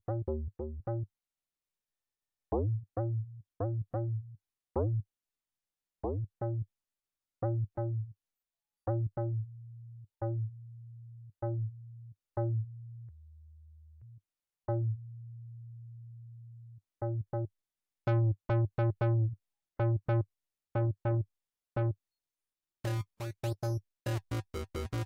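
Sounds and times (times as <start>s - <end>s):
punchy synth bass notes: 22.9s - 25.0s.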